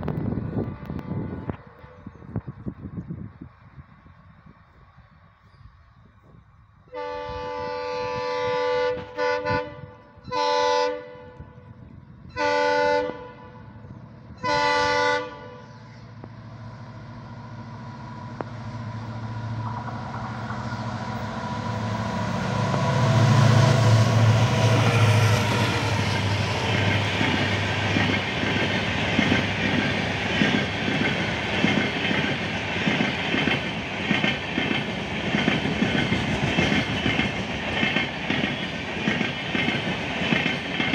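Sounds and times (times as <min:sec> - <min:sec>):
diesel locomotive passing: 0:00.0 - 0:40.9
locomotive air horn: 0:06.9 - 0:11.6, 0:12.3 - 0:13.7, 0:14.4 - 0:15.9.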